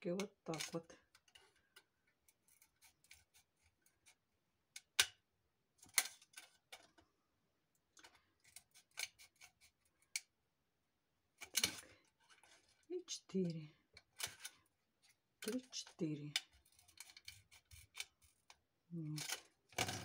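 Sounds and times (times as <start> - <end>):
scissors cutting plastic: 0.1 - 5.2, 8.0 - 10.3, 11.4 - 14.6, 15.4 - 20.0.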